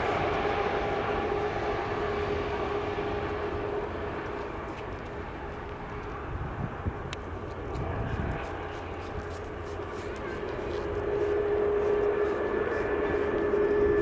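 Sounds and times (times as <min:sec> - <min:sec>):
steady tone: 0:00.0 - 0:05.6, 0:07.8 - 0:14.0
jet engines rushing hum: 0:00.0 - 0:14.0.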